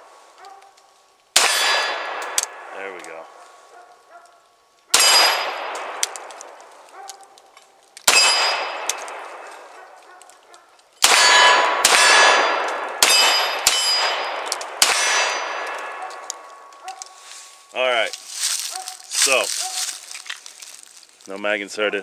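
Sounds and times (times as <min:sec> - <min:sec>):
pistol shots with metallic echo: 0:01.4 - 0:03.4, 0:04.9 - 0:06.7, 0:08.0 - 0:09.9, 0:11.0 - 0:17.0.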